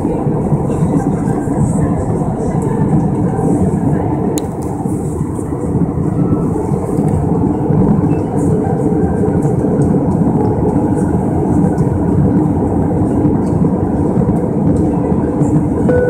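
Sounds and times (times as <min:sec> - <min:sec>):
aircraft cabin rumble: 0:00.0 - 0:16.0.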